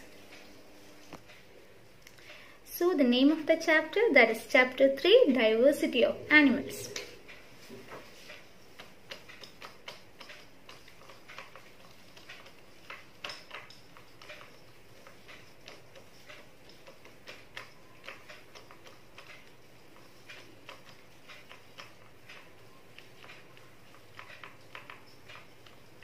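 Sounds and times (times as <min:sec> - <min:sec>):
marker pen writing on whiteboard: 0:05.2 - 0:26.0.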